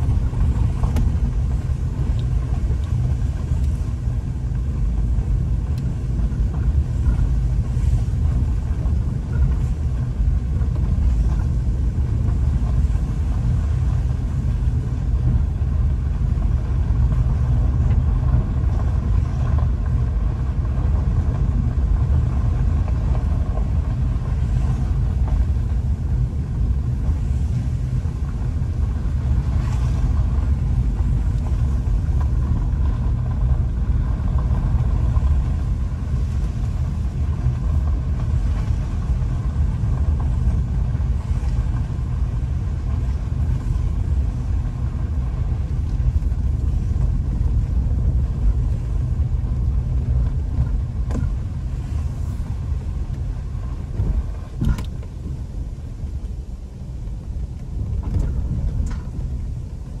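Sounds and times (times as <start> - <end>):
car interior rumble: 0.0 - 60.0.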